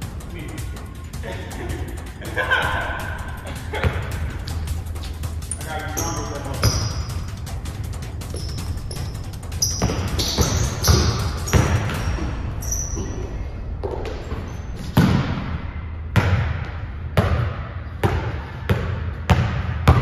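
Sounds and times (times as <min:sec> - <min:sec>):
basketball bouncing on gym floor: 0:03.7 - 0:04.6, 0:06.0 - 0:07.2, 0:08.2 - 0:20.0
sneaker squeaks: 0:03.8 - 0:15.2.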